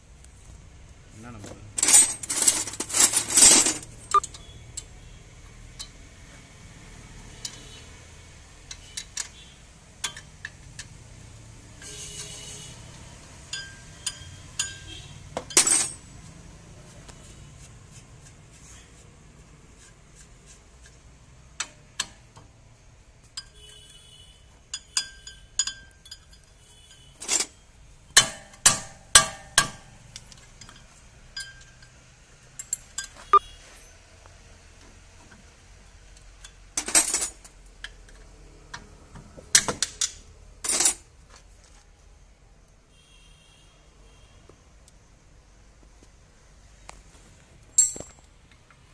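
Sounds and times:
tools clinking on metal: 1.8 - 4.4, 10.0 - 10.9, 13.5 - 16.0, 24.7 - 27.6, 28.2 - 32.0, 39.6 - 41.0, 47.8 - 48.2.

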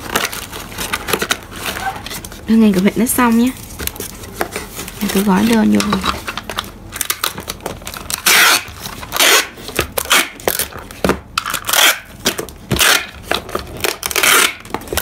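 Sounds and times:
packing tape pulled off roll: 6.0 - 15.0.

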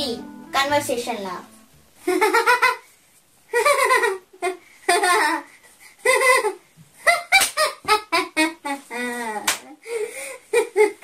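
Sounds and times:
girl laughing: 2.0 - 2.9, 3.5 - 9.5, 10.5 - 11.0.

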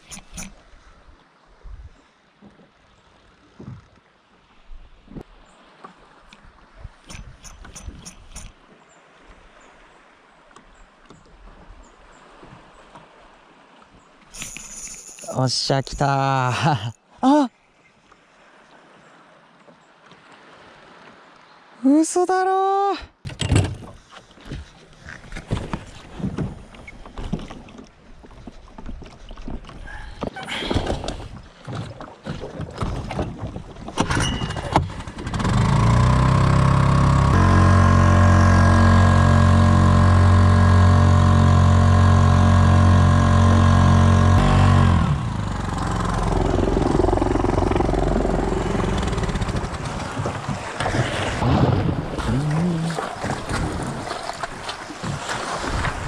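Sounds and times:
knocks and clicks: 7.1 - 8.5
boat engine drone: 34.0 - 51.4.

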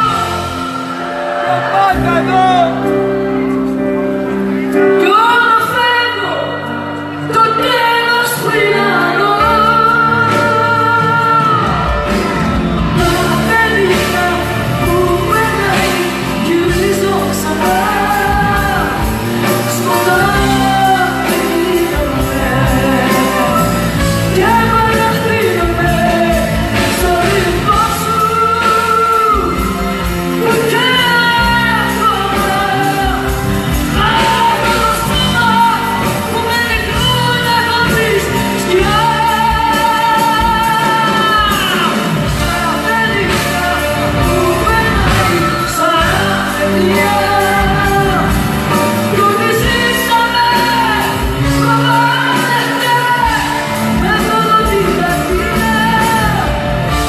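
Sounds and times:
live band playing: 0.0 - 57.0
woman singing with vibrato: 4.9 - 57.0
drums and cymbals: 9.4 - 57.0.

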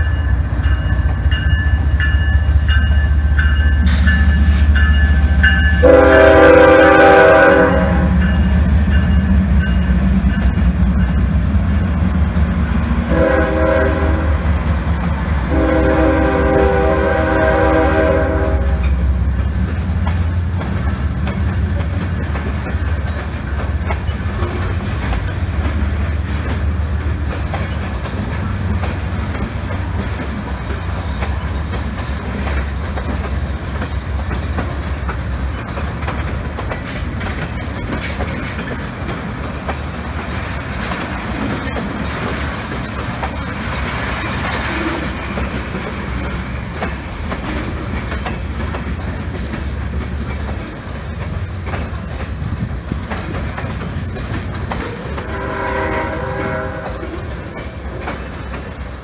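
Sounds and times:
freight train rumbling and clattering: 0.0 - 59.0
train air horn blasts: 5.8 - 8.2, 13.0 - 14.5, 15.4 - 19.0, 55.0 - 57.4.

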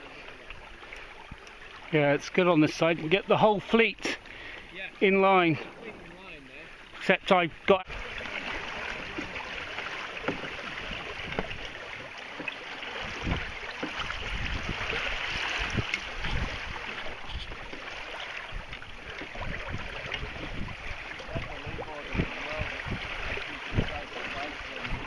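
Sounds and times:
water rushing along hull: 0.0 - 25.0
wind rumble on microphone: 10.8 - 11.8, 13.0 - 17.7, 18.4 - 25.0.

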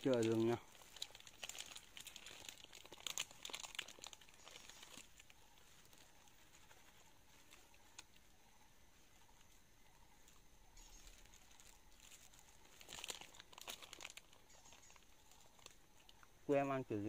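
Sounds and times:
plastic bag crinkling: 0.0 - 5.9, 10.8 - 15.8.

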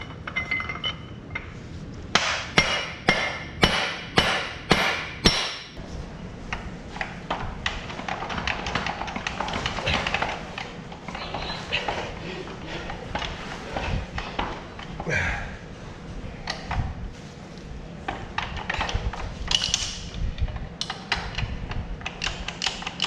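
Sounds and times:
hammer striking steel punch: 2.2 - 5.8
metal parts scraping: 7.9 - 12.2.

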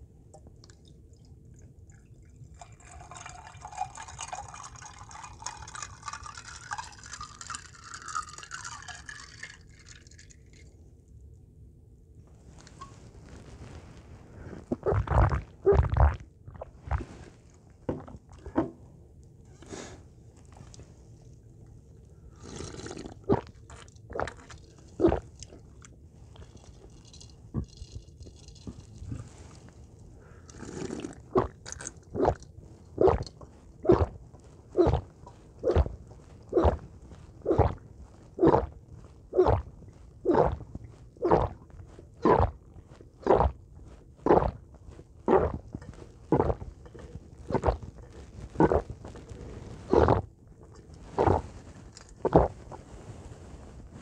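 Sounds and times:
juice pouring over ice: 1.9 - 10.7, 22.4 - 24.8, 26.3 - 29.5
loud gulping swallows: 14.5 - 17.2, 17.9 - 18.7, 22.3 - 26.5, 30.2 - 43.6, 44.2 - 44.6, 45.2 - 52.8
slurping sip: 22.3 - 25.6, 28.5 - 34.2, 34.8 - 38.8, 39.4 - 39.7, 40.3 - 42.6, 43.2 - 43.6, 44.2 - 44.6, 45.2 - 52.8.

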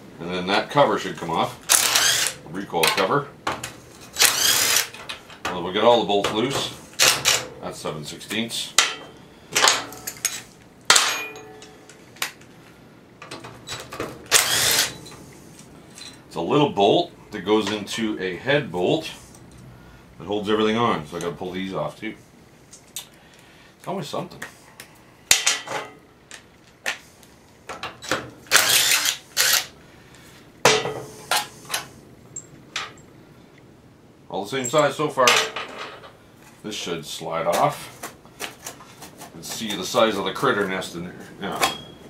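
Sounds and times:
metallic clang on workbench: 10.9 - 11.8, 30.7 - 31.1, 41.6 - 42.0
impact driver hammering: 14.3 - 15.0.

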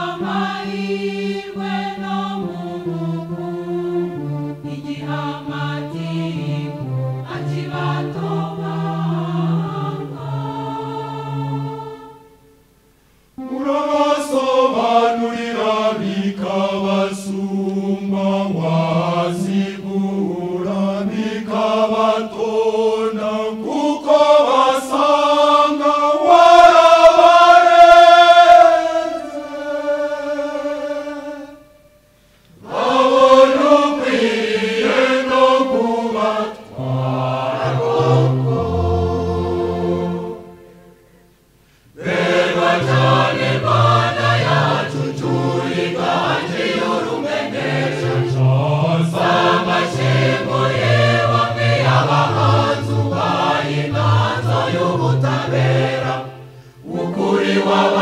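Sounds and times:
choir singing in harmony: 0.0 - 58.0.

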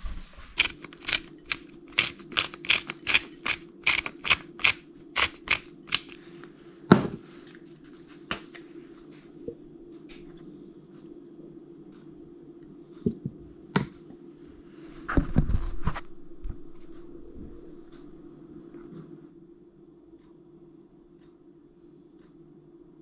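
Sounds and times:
salt shaker shaking: 0.4 - 6.2.

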